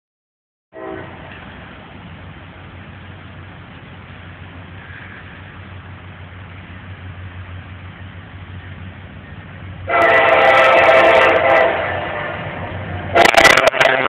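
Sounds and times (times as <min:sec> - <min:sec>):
locomotive air horn: 0:00.7 - 0:01.3, 0:09.9 - 0:14.0
low steady rumble: 0:00.8 - 0:14.0.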